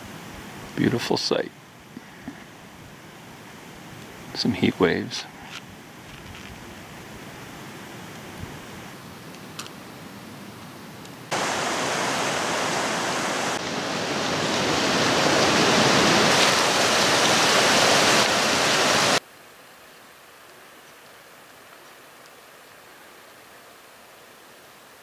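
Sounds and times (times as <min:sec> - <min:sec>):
mountain creek rushing: 0:11.3 - 0:25.0.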